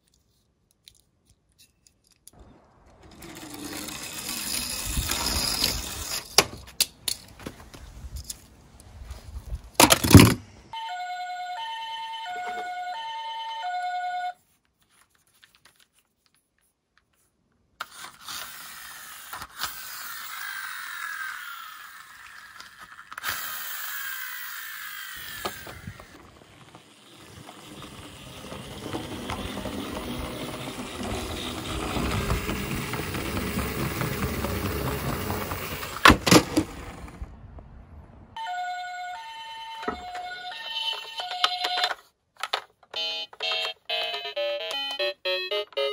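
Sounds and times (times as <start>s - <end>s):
toy rolling on wooden board: 1.6s - 8.5s, 17.8s - 37.3s, 39.8s - 45.9s
friction-motor toy whirring: 3.0s - 6.5s, 17.8s - 37.1s
toy cars clattering into box: 3.0s - 7.4s, 9.8s - 10.4s, 17.8s - 37.2s
two-tone siren: 10.8s - 14.4s, 38.4s - 41.9s, 43.0s - 45.9s.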